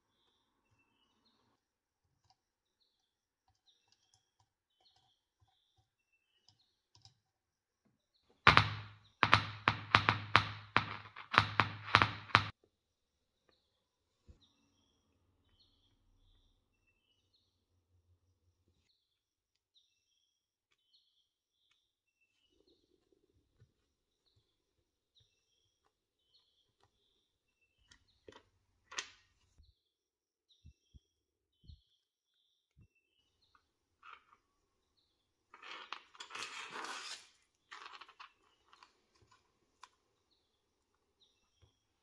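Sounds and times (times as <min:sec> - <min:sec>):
faint bird chirps: 0:02.3 - 0:07.1.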